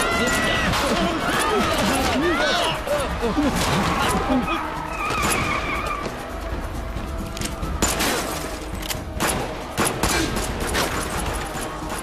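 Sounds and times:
dramatic action music: 0.0s - 12.0s.

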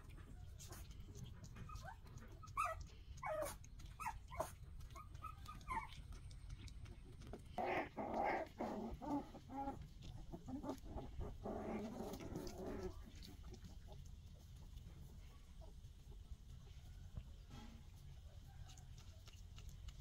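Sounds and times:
puppies whimpering and yipping: 1.4s - 6.3s.

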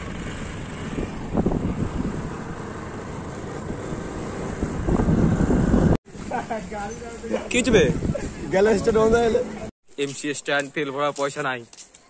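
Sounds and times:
wind rushing over microphone: 0.0s - 6.0s, 7.6s - 9.3s.

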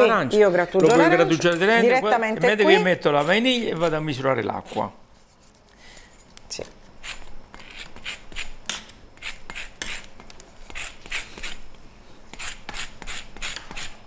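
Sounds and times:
zest grated on rasp grater: 7.0s - 8.6s, 9.2s - 11.6s, 12.3s - 14.0s.

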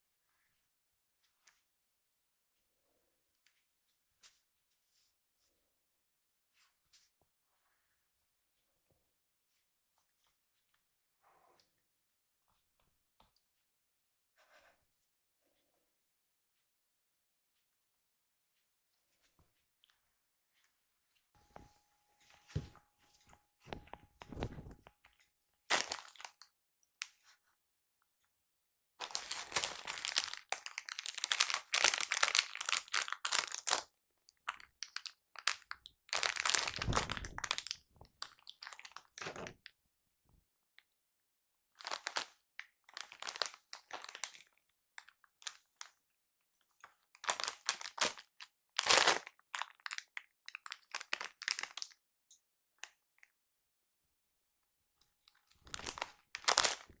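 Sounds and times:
foil snack bag crinkling: 29.0s - 33.9s, 34.6s - 38.9s, 55.6s - 56.9s.

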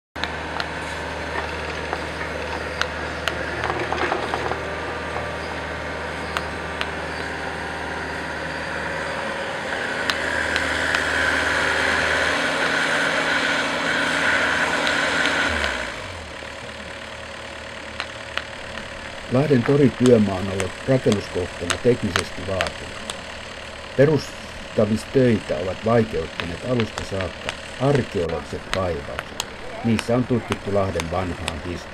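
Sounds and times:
construction machinery engine: 0.2s - 31.9s
high whirring noise: 0.2s - 31.9s.

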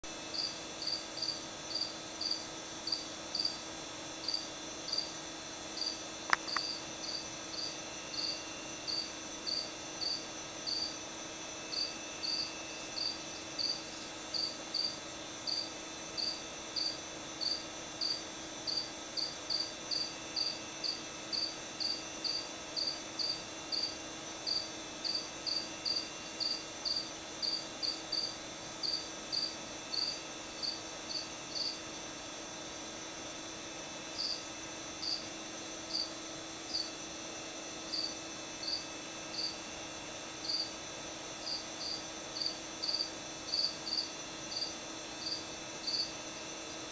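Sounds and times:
cricket chirping: 0.3s - 3.6s, 4.2s - 5.2s, 5.8s - 11.0s, 11.7s - 31.8s, 34.2s - 35.3s, 35.9s - 37.0s, 37.9s - 39.6s, 40.4s - 40.8s, 41.4s - 46.1s
sharp click: 6.3s - 6.7s.

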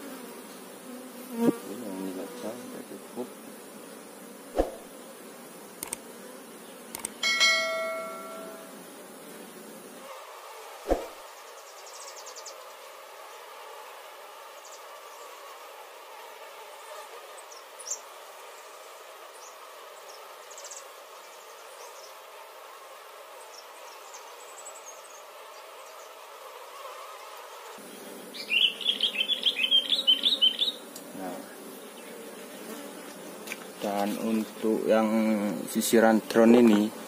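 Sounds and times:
honey bees buzzing: 0.0s - 37.0s
faint click: 5.8s - 6.0s, 6.9s - 7.2s.

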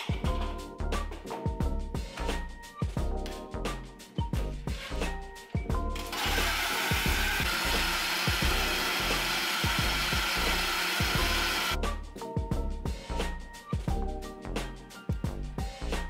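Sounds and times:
blender motor running: 6.0s - 11.8s.

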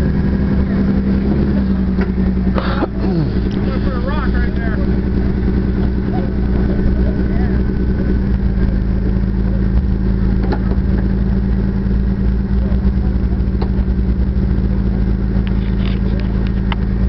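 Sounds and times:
engine running at low revs: 0.0s - 17.0s.

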